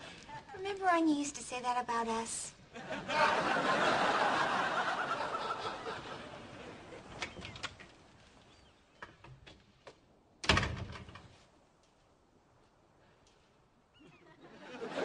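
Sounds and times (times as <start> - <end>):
audience laughter: 2.7 - 7.1, 14.2 - 15.0.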